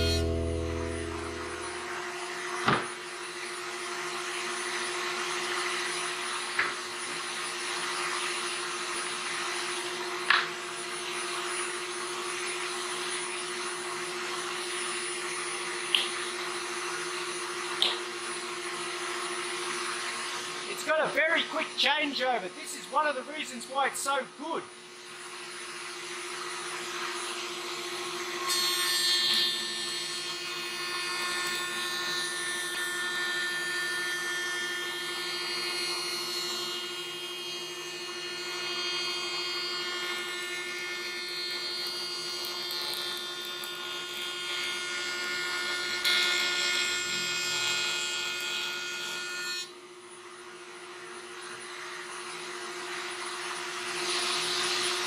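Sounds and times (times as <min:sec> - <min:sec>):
machine hum: 0:00.0 - 0:02.4
router cutting wood: 0:00.0 - 0:02.9, 0:26.4 - 0:49.7.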